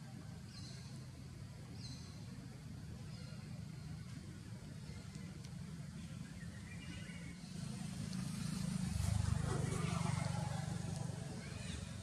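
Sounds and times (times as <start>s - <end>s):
motor vehicle passing rumble: 6.6s - 12.0s.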